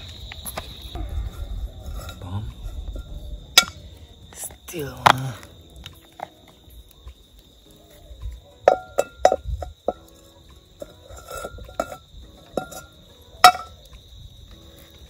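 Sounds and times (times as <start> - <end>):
high insect drone: 0.0 - 15.0
metal pot clinking: 1.8 - 3.8, 8.6 - 10.2, 10.8 - 13.8.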